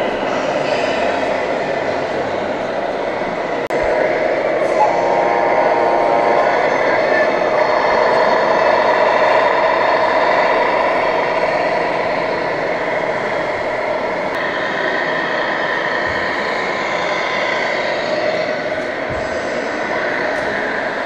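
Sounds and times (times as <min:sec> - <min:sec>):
model trucks whirring and whining: 0:00.0 - 0:21.0.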